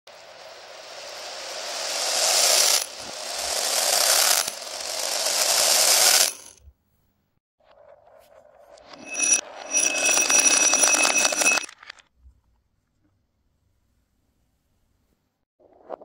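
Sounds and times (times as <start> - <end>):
reversed beads clattering on floor: 1.6 - 6.6, 8.9 - 11.9.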